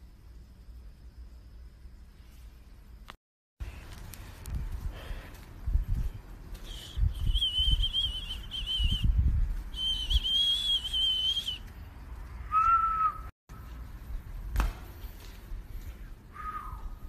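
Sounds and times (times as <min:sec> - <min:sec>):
high wavering whistling: 0:06.5 - 0:13.3, 0:16.0 - 0:17.0.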